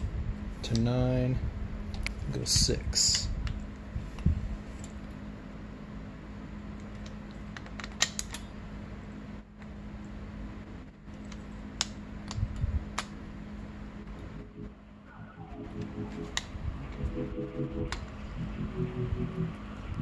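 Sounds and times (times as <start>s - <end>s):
shop fan humming: 8.5s - 20.0s.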